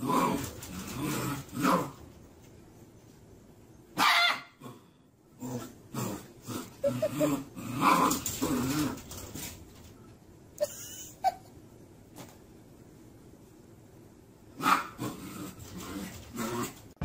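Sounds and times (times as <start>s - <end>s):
puppy growling and yipping: 0.0s - 2.0s, 5.4s - 9.2s, 14.6s - 16.8s
puppy barking: 4.0s - 4.6s, 14.6s - 15.0s.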